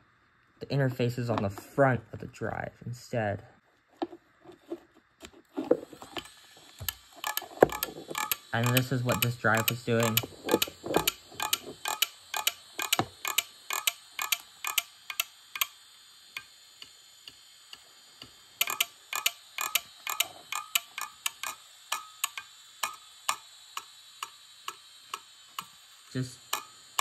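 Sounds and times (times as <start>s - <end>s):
hard drive clicking: 5.6s - 27.0s.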